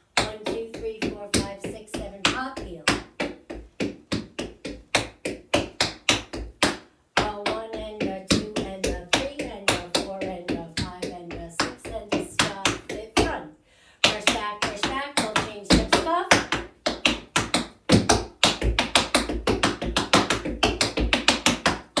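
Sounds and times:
tap shoes on wooden board: 14.0s - 22.0s.

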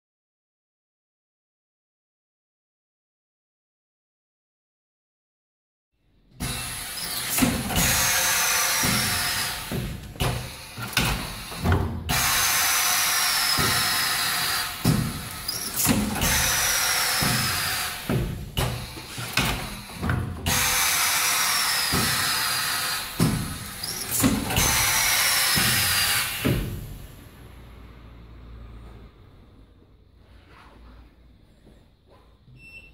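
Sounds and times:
machine knocks and clicks: 6.4s - 12.5s, 13.5s - 21.0s, 21.8s - 27.0s
pneumatic hiss: 6.4s - 27.7s.

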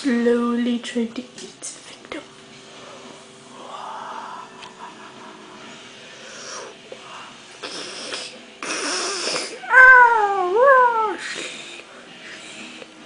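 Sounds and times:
raspy hissing breaths: 2.7s - 9.6s, 11.2s - 12.9s
person whining cry: 9.6s - 11.2s.

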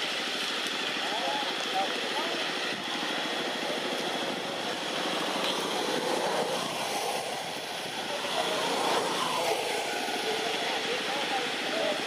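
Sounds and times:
distant engine noise: 0.0s - 12.0s
faint wavering voices: 5.6s - 12.0s.

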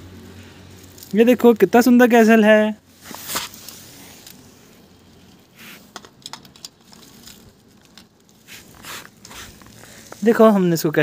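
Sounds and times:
toy cars scraping on concrete: 2.9s - 10.4s
sharp clicks of plastic blocks: 5.9s - 8.3s.

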